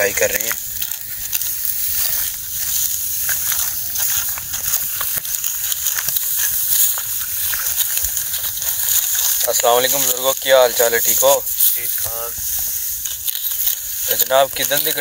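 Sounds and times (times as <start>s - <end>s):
dry wheat stalks rustling: 0.0s - 15.0s
sharp ticks: 0.0s - 15.0s.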